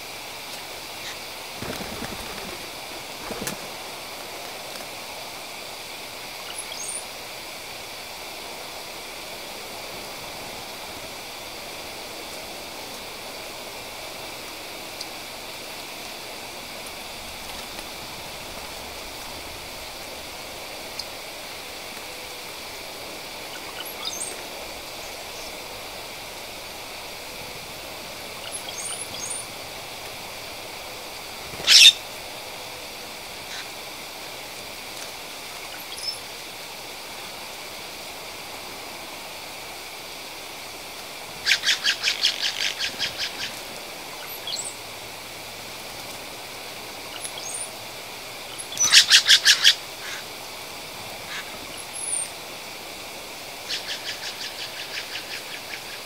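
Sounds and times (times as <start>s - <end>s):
bird rattling call: 31.6s - 32.0s, 41.4s - 43.6s, 48.6s - 50.2s.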